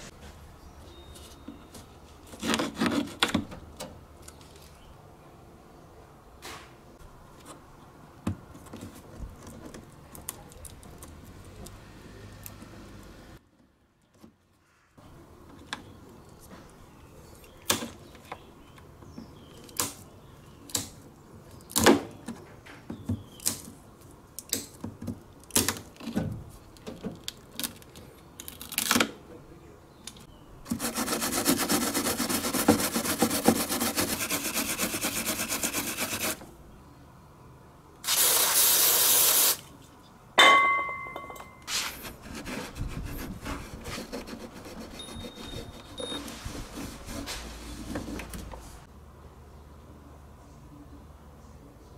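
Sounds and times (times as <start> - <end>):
wire brush scrubbing plastic: 30.7 - 36.4.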